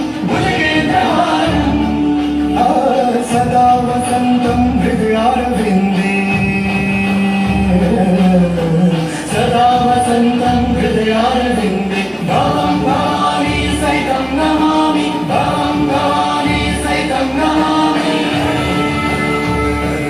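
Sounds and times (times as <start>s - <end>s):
voices singing sustained notes: 0.0s - 3.2s, 11.8s - 20.0s
background music: 0.0s - 20.0s.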